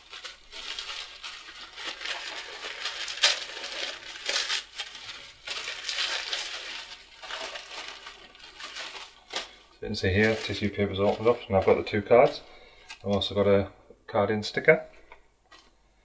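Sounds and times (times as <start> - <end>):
tissue paper rustling: 0.0 - 13.0.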